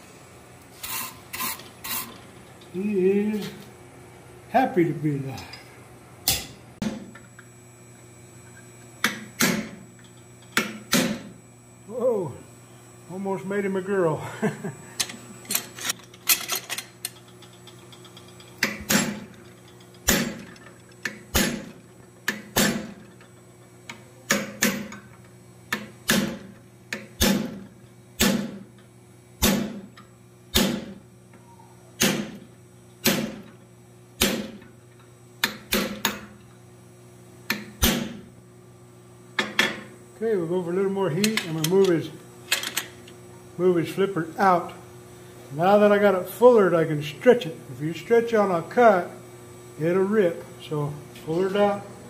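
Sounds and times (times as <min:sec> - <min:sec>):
steady low hum: 0:00.0 - 0:52.0
hammer striking hot steel: 0:09.0 - 0:09.8, 0:28.2 - 0:28.6, 0:29.4 - 0:29.8, 0:30.5 - 0:30.9, 0:33.0 - 0:33.4, 0:34.2 - 0:34.6.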